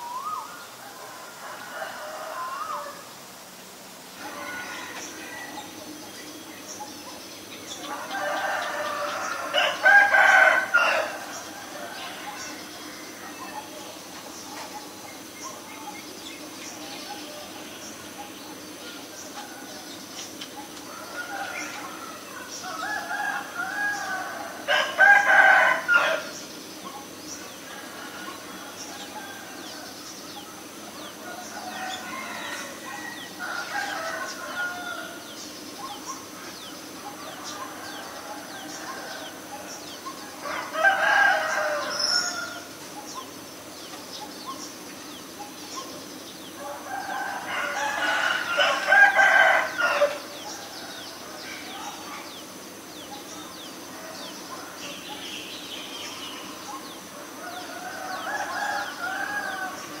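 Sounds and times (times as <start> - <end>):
rooster crowing: 0.8 - 3.1, 4.2 - 6.0, 7.8 - 13.4, 20.9 - 26.4, 31.2 - 35.3, 37.1 - 42.8, 46.6 - 51.1, 57.2 - 60.0.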